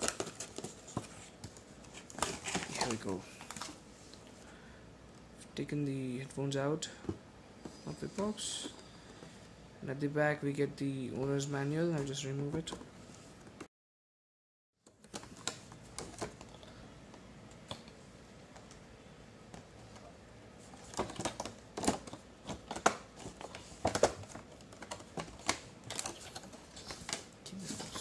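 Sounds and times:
plastic tray crackling and clicking: 0:20.8 - 0:27.2.

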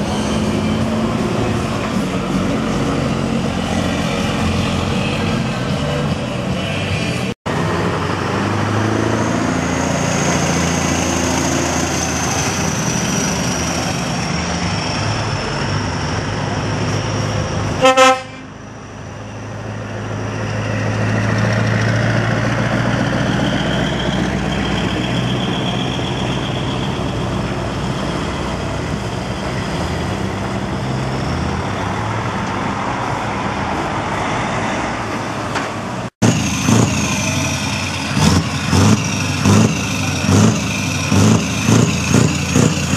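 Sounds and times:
truck diesel engines: 0:00.0 - 0:42.9
air horn blast: 0:17.8 - 0:18.6.

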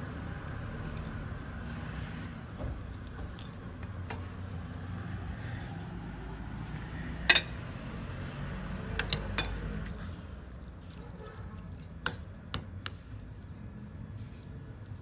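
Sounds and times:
dishes and utensils clinking: 0:07.2 - 0:07.6.

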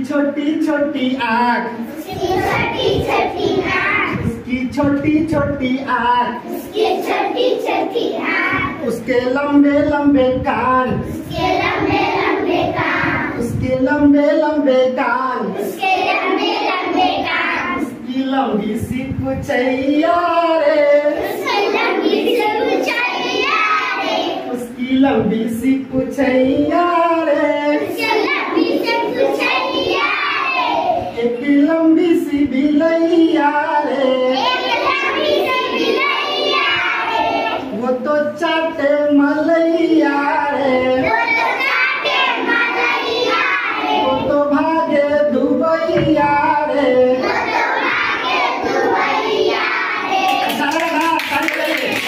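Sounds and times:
children singing in unison: 0:01.8 - 0:04.4, 0:06.3 - 0:09.1, 0:10.4 - 0:13.6, 0:15.4 - 0:18.2, 0:19.6 - 0:24.7, 0:26.6 - 0:31.7, 0:32.4 - 0:38.0, 0:38.6 - 0:51.1.

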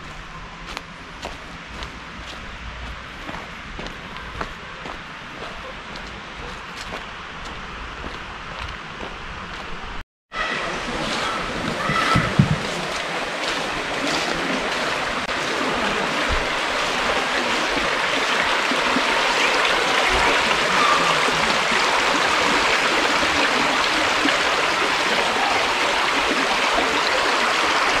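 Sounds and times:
stream running over stones: 0:10.6 - 0:28.0.

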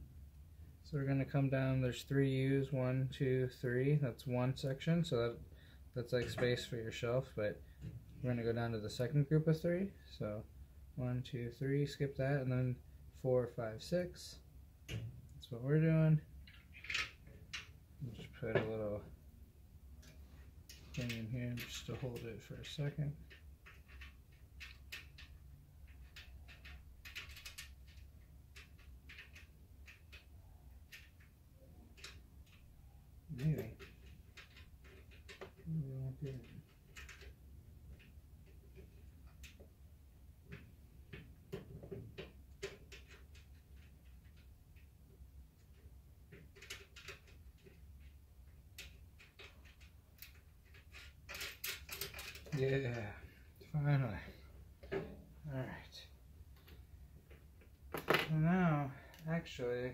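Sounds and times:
small metal clicks and scrapes: 0:20.0 - 0:32.7, 0:33.3 - 0:39.7, 0:40.5 - 0:53.1.

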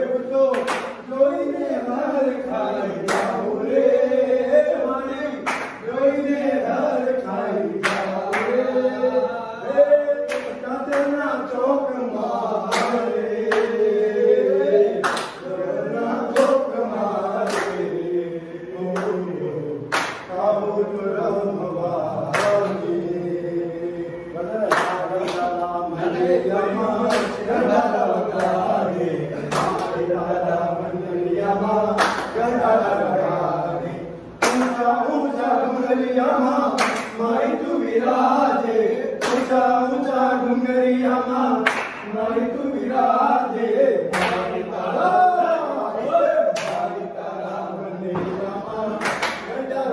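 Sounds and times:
men singing in chorus: 0:00.0 - 0:49.9
sharp hand claps: 0:00.5 - 0:01.1, 0:03.0 - 0:03.4, 0:05.3 - 0:05.8, 0:07.8 - 0:08.7, 0:10.2 - 0:11.2, 0:12.6 - 0:13.9, 0:15.0 - 0:15.5, 0:16.3 - 0:16.6, 0:17.4 - 0:17.9, 0:18.9 - 0:19.2, 0:19.8 - 0:20.4, 0:22.3 - 0:22.8, 0:24.7 - 0:25.6, 0:27.0 - 0:27.5, 0:28.4 - 0:28.6, 0:29.4 - 0:30.0, 0:31.9 - 0:32.6, 0:34.4 - 0:34.9, 0:36.7 - 0:37.3, 0:39.2 - 0:39.7, 0:41.6 - 0:42.2, 0:44.1 - 0:44.6, 0:46.5 - 0:47.0, 0:48.2 - 0:49.6.

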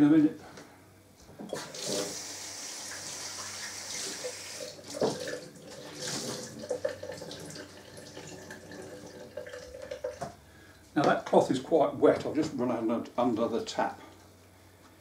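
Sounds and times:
tap running into sink: 0:04.0 - 0:05.4.

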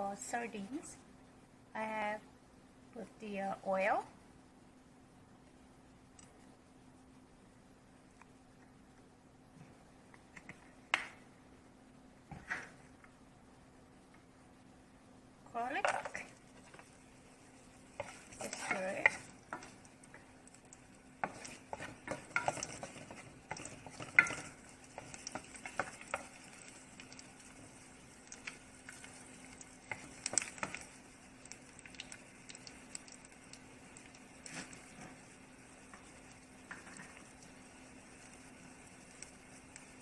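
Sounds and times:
faint steady hum: 0:00.0 - 0:40.0
light sizzling: 0:02.9 - 0:40.0
wooden spoon scraping vegetables: 0:15.6 - 0:31.0, 0:34.4 - 0:37.4.

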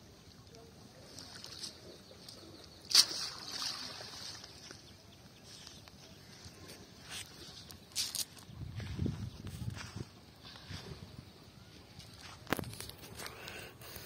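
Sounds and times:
net splashing out of water: 0:02.8 - 0:04.6
water running off net: 0:02.9 - 0:04.5.

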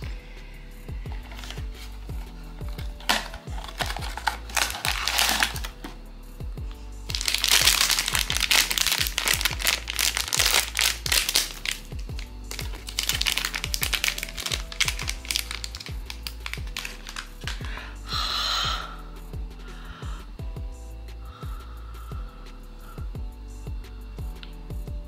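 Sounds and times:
background music with steady beat: 0:00.0 - 0:25.0
packaging crinkling: 0:01.1 - 0:06.0, 0:07.1 - 0:17.9.

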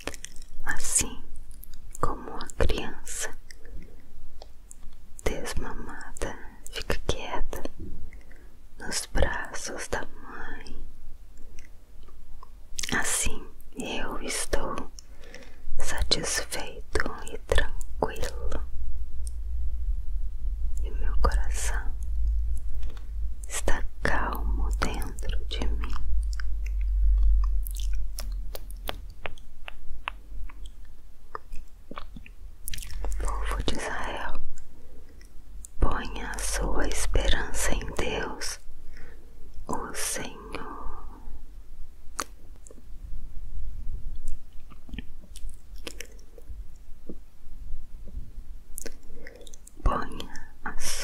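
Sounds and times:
wet mouth clicks and lip smacks: 0:00.0 - 0:00.6, 0:12.4 - 0:13.0, 0:24.7 - 0:33.4, 0:42.1 - 0:42.8, 0:44.1 - 0:46.4, 0:48.8 - 0:50.3
soft clicks and crackles: 0:00.0 - 0:19.5, 0:20.8 - 0:38.7, 0:44.1 - 0:47.3, 0:48.0 - 0:51.0
low steady hum: 0:00.0 - 0:51.0
low rumble: 0:15.7 - 0:38.9.

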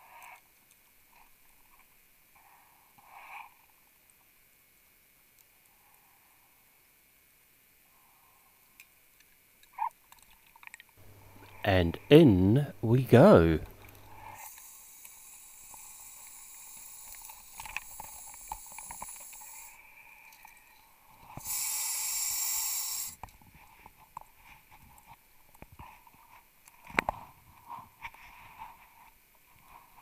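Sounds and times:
underwater gas hiss: 0:14.2 - 0:19.9, 0:21.3 - 0:23.2.

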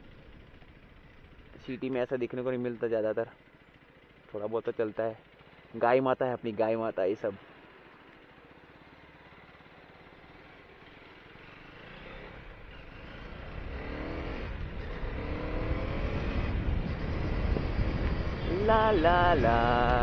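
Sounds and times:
motorcycle engine accelerating: 0:07.4 - 0:20.0.

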